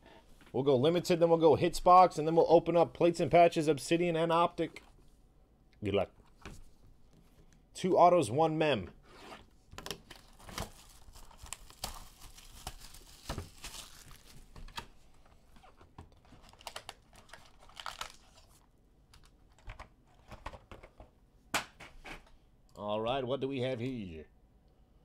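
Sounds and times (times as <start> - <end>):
paper and foil rustling: 10.0 - 14.8, 15.6 - 19.6
cardboard tearing: 10.2 - 14.4.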